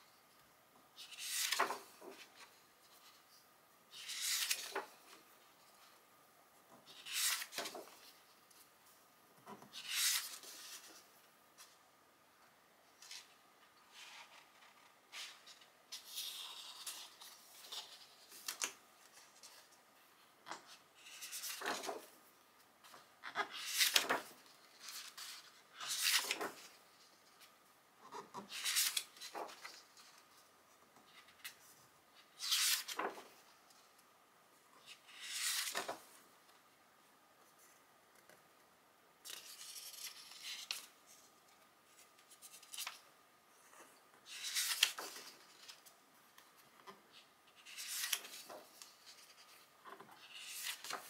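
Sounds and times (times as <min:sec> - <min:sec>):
book pages turning: 0:01.0 - 0:03.2, 0:03.9 - 0:05.9, 0:06.8 - 0:08.6, 0:09.5 - 0:11.0, 0:14.0 - 0:19.8, 0:20.7 - 0:22.2, 0:22.8 - 0:27.5, 0:28.1 - 0:30.4, 0:31.0 - 0:33.5, 0:34.8 - 0:36.2, 0:39.2 - 0:43.0, 0:43.7 - 0:51.0.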